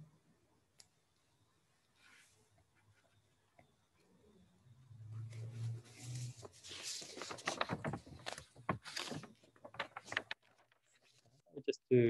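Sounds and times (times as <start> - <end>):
rustling: 5.1 - 11.4.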